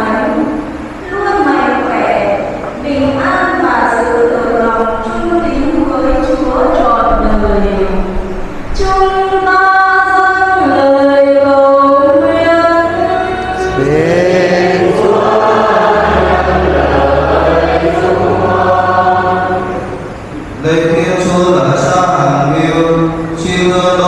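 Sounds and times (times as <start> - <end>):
choir singing a slow hymn: 9.2 - 23.8.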